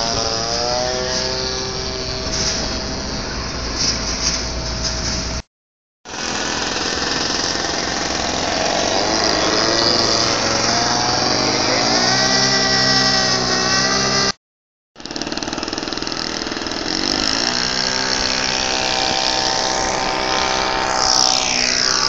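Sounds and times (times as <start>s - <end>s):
model plane engine flying by: 6.1s - 14.3s, 17.6s - 22.0s.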